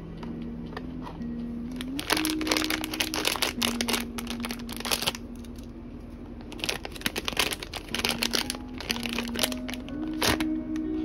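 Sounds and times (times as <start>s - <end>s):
plastic bag crinkling: 1.8s - 5.7s, 6.5s - 10.5s.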